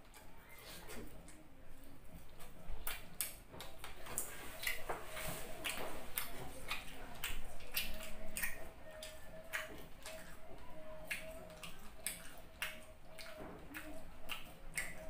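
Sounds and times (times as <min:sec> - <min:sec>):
chewing with wet clicks: 0:00.0 - 0:15.0.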